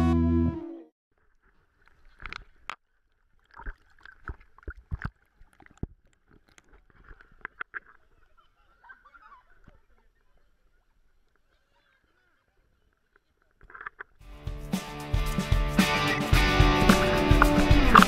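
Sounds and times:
water lapping at camera: 1.2s - 11.9s.

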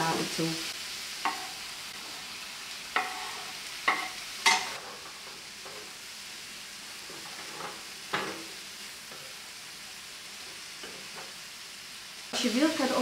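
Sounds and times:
food sizzling in a frying pan: 0.0s - 13.0s
utensils knocking against pan: 3.0s - 4.8s, 7.2s - 8.5s.

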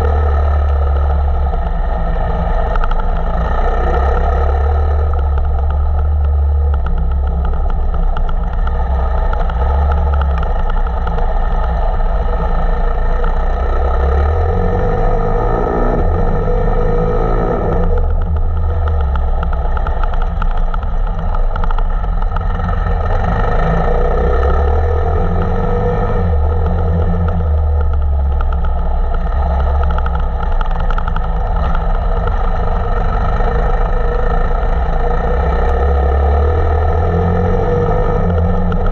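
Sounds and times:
motorcycle engine revving: 0.0s - 38.9s.

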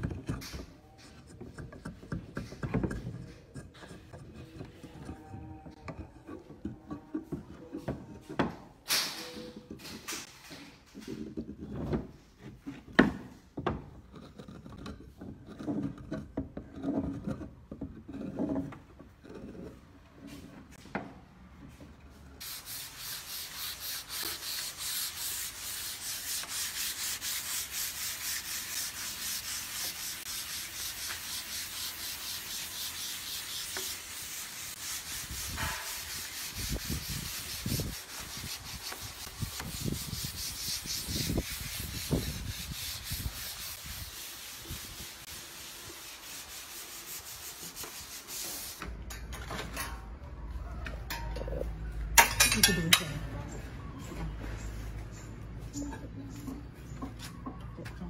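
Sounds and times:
wood being sanded: 22.4s - 48.8s.

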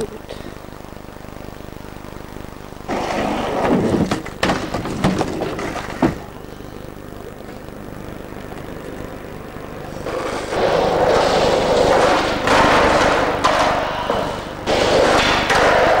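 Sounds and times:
skateboard wheels rolling on pavement: 2.8s - 6.5s, 8.4s - 16.0s.

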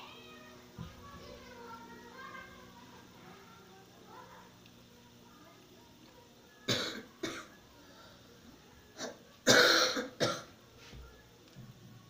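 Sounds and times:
person coughing: 9.0s - 10.5s.

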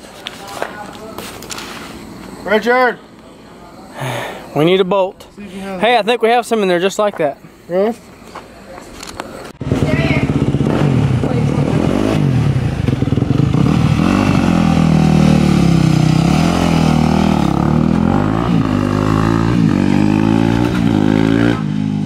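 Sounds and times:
small engine revving: 9.6s - 22.0s.

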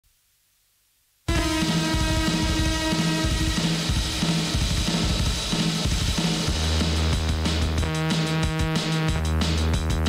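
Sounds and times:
sustained droning tone: 1.3s - 5.4s
low pulse: 1.3s - 6.0s.

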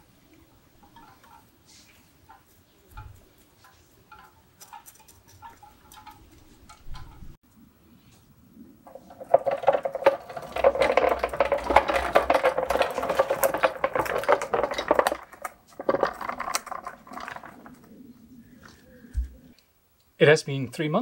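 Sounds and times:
caster wheels rattling on concrete: 0.0s - 7.4s, 8.9s - 18.1s.

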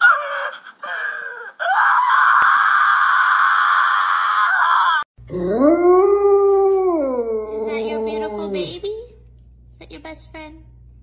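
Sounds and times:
dog screaming: 1.6s - 6.1s.

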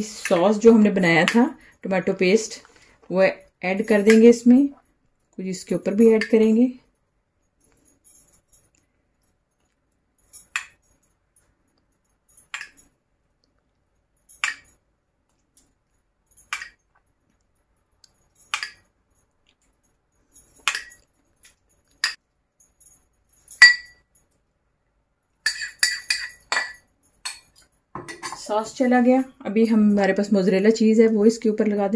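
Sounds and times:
metal spoon clinking on dishes: 20.6s - 21.1s, 21.9s - 22.2s, 23.4s - 24.0s, 25.4s - 28.8s.

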